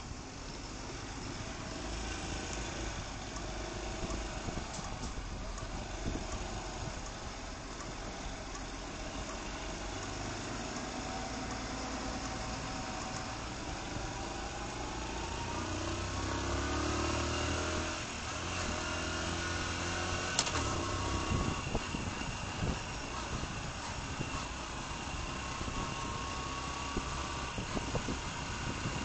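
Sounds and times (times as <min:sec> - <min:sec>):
motorcycle engine accelerating: 0:00.6 - 0:29.0
sharp click: 0:20.4 - 0:20.7.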